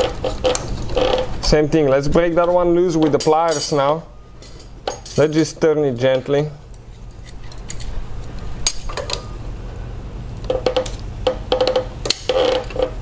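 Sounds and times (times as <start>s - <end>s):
rubber hose squeaking: 0.0s - 2.4s.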